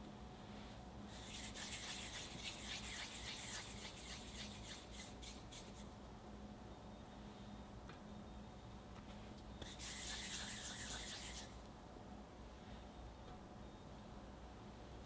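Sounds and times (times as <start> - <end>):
palms rubbing dough: 1.1 - 5.9, 9.6 - 11.6.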